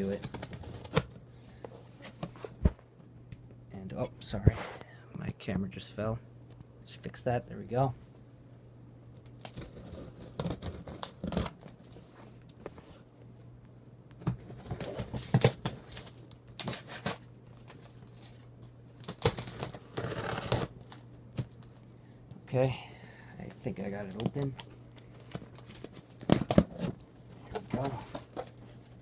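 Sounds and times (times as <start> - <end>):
knife slitting packing tape: 0.0 - 1.1, 9.4 - 11.6, 19.1 - 20.7.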